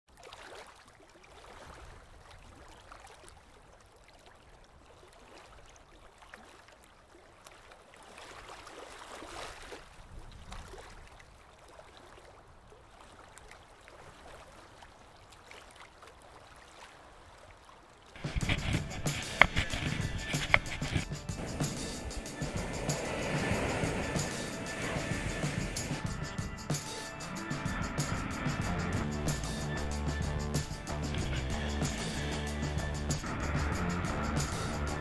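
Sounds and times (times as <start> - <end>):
faint washing water noise: 13.4 - 26.1.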